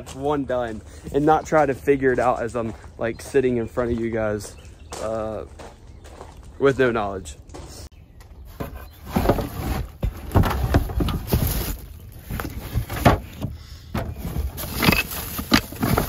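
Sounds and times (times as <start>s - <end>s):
cardboard box rustling and knocking: 8.5s - 16.0s.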